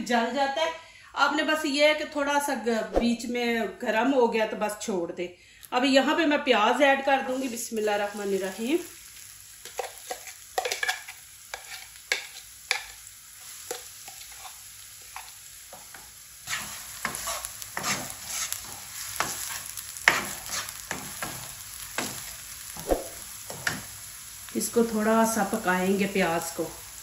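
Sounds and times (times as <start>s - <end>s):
onion sizzling in oil: 5.7s - 27.0s
spoon scraping and knocking pan: 9.6s - 23.9s.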